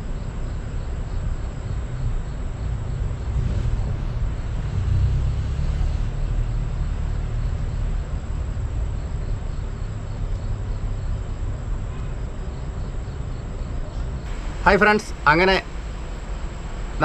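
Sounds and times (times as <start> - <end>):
faint hiss: 13.9 - 17.0
low rumble: 14.2 - 17.0.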